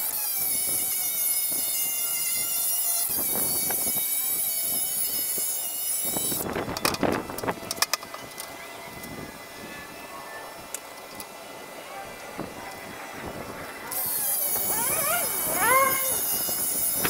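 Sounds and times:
circular saw cutting board: 13.8 - 17.0.

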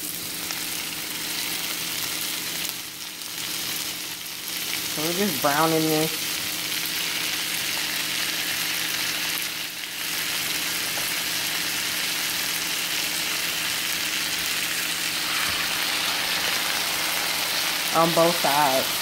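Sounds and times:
chicken sizzling in a frying pan: 0.0 - 19.0.

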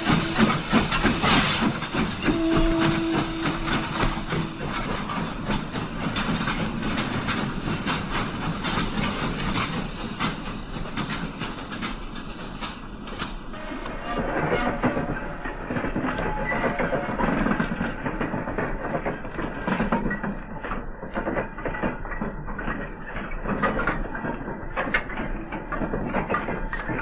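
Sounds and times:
model train wheels clicking on rails: 0.0 - 13.5.

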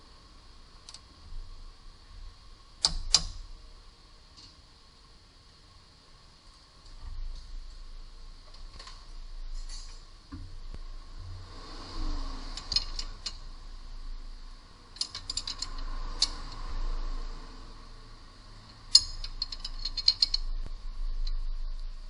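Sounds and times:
ratchet wrench clicking: 12.5 - 13.5, 14.9 - 16.7, 18.6 - 20.5.

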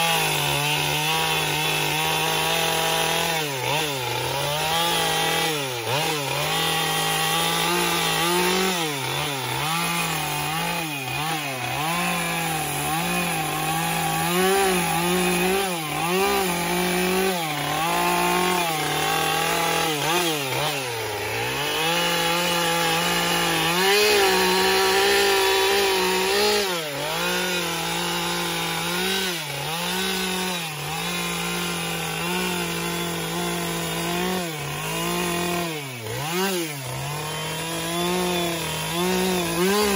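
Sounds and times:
chainsaw cutting into log: 0.0 - 39.9.

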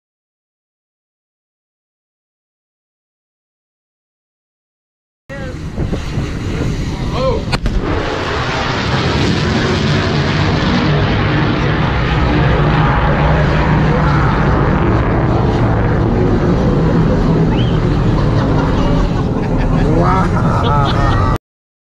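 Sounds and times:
jet engine roar: 5.3 - 21.4
sonic boom crack: 5.9 - 18.7
voices calling out: 17.5 - 21.4.

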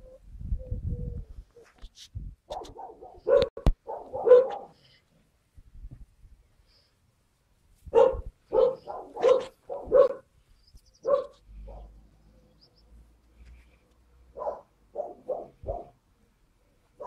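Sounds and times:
dog barking: 2.5 - 4.8, 7.9 - 10.3, 11.0 - 12.0, 14.3 - 16.0.

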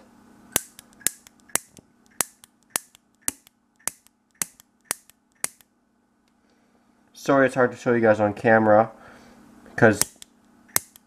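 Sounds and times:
piezo igniter snaps: 0.5 - 5.7, 10.0 - 11.0.

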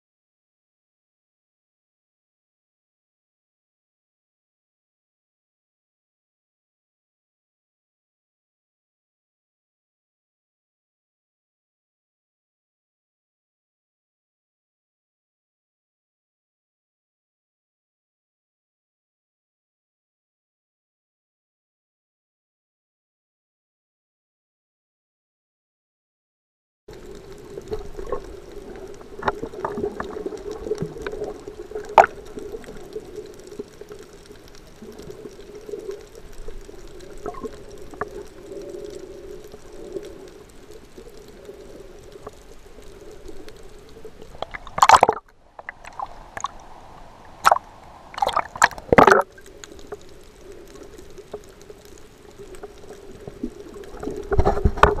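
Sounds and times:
clicks and crackles: 26.9 - 46.7, 47.3 - 55.0
bursts of water noise: 26.9 - 55.0.

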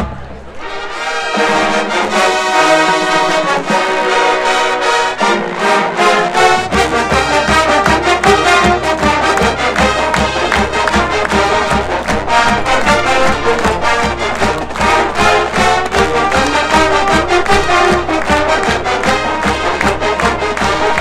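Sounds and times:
brass chords: 0.0 - 21.0
steady drum beat: 6.3 - 21.0.

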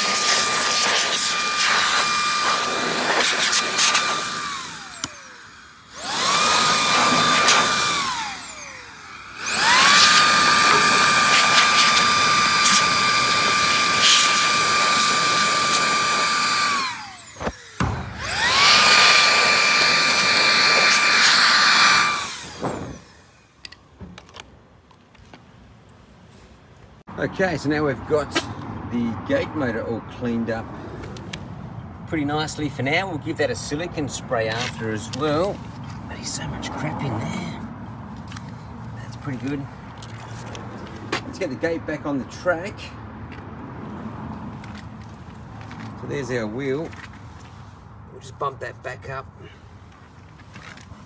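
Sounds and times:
small electric motor whining: 0.0 - 23.8.

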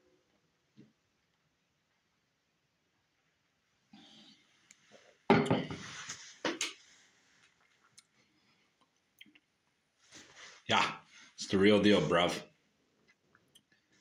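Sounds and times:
glass mug knocking on wooden table: 5.3 - 5.8.

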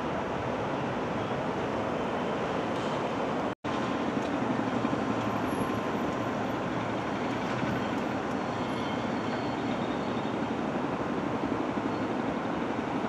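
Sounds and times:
jet engines roaring at takeoff: 0.0 - 13.0.

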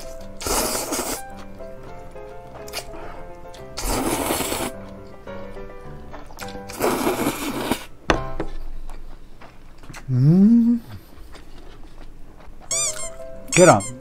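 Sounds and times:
person humming mmm: 0.0 - 1.4, 2.6 - 4.9, 6.4 - 7.9, 9.9 - 11.1
person slurping noodles: 0.0 - 1.4, 3.8 - 4.8, 6.7 - 7.9.

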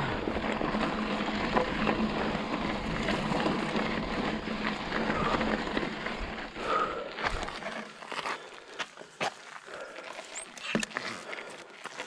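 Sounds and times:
bike rattles and knocks: 0.0 - 8.3, 10.3 - 11.2
bike tyres on dirt: 0.0 - 12.0.

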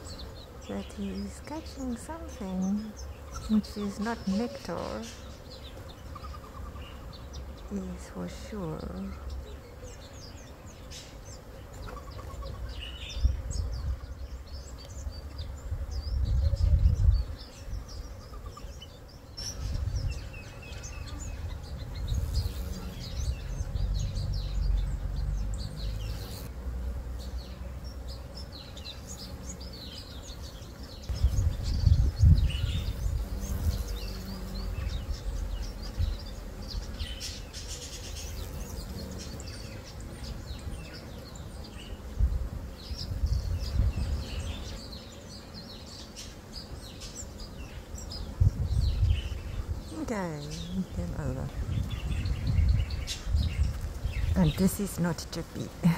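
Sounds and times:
small birds chirping: 0.0 - 55.9
low rumble on microphone: 15.0 - 18.1, 31.1 - 37.2, 48.1 - 54.5.

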